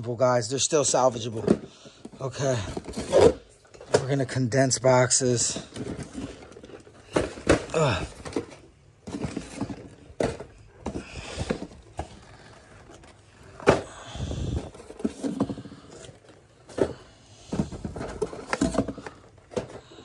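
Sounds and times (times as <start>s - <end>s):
cardboard boxes knocking and thudding: 5.6s - 20.0s.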